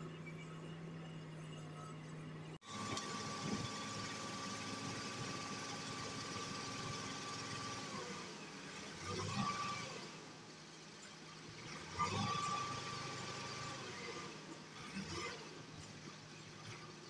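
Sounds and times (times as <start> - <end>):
crane diesel engine running: 0.0 - 9.0.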